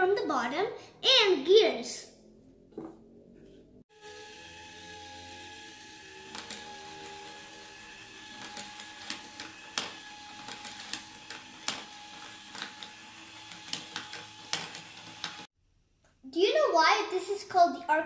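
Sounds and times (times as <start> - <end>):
small motor and gears whining: 3.9 - 15.5.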